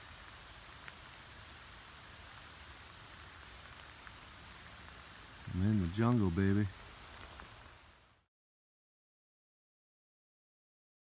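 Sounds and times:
sharp raindrop ticks: 0.0s - 7.9s
light rain patter: 0.0s - 8.3s.

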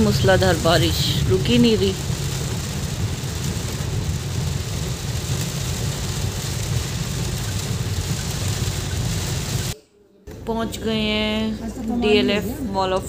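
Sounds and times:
car rumbling on wet road: 0.0s - 9.8s
heavy rain on car roof: 0.0s - 9.8s.

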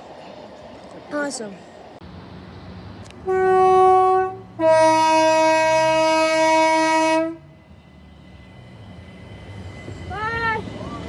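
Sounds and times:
train rumbling into platform: 0.0s - 11.0s
electric train horn: 3.2s - 7.5s.

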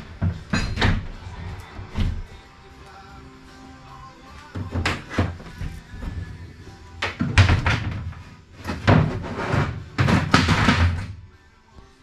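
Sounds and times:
wooden crate lid creaking: 7.0s - 11.1s.

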